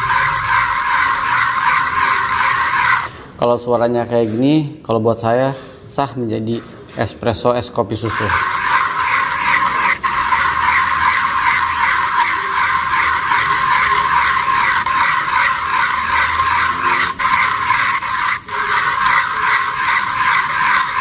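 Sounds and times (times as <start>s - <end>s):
hand coffee grinder grinding beans: 0.0s - 3.3s, 7.9s - 21.0s.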